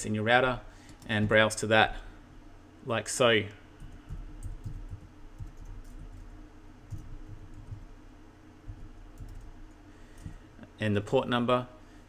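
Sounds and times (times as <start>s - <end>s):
keyboard typing: 3.8s - 8.0s, 8.7s - 10.4s.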